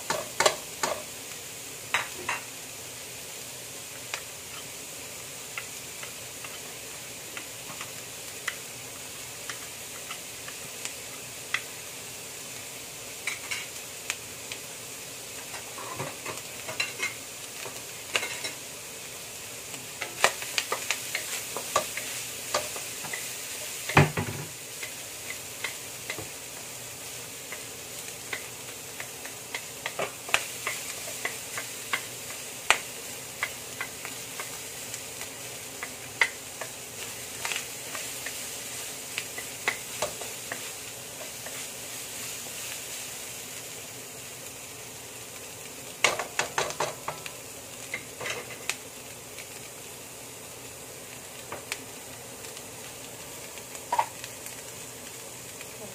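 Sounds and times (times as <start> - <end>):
meat sizzling in oil: 0.0 - 55.9
spatula tapping on pan: 0.1 - 1.0, 23.9 - 26.3.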